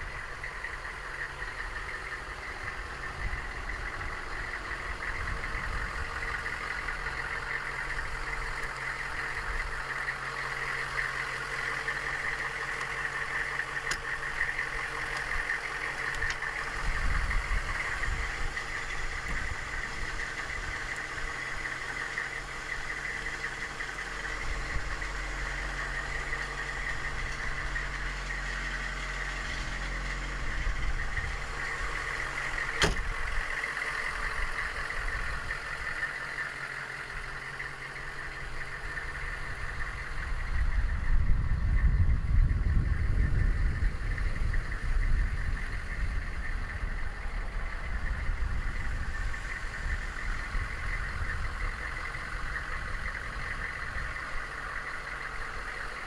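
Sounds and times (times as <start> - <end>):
diesel engine idling: 0.0 - 56.0
sharp click: 32.8 - 33.2.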